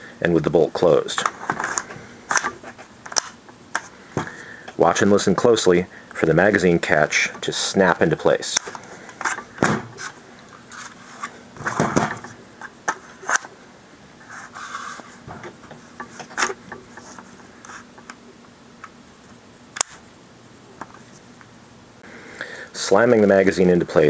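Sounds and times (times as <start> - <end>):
magazine scraping and rustling: 1.1 - 4.4, 8.5 - 13.6, 14.2 - 18.2.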